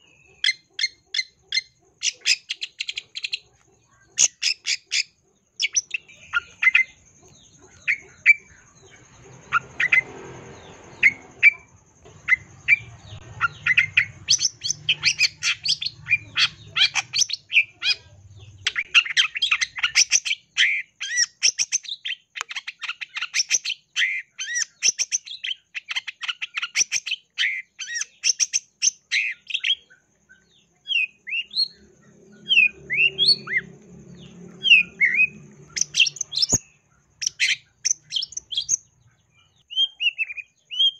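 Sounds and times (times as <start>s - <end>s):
bird singing chirps and whistles: 11.0s - 40.9s.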